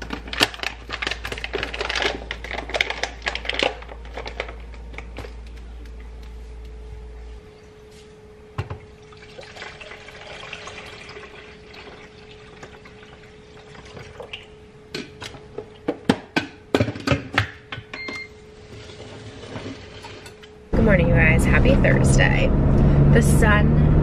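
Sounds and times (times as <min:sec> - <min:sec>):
low hum: 0:00.4 - 0:09.2, 0:20.4 - 0:24.0
liquid pouring into container: 0:08.8 - 0:14.6.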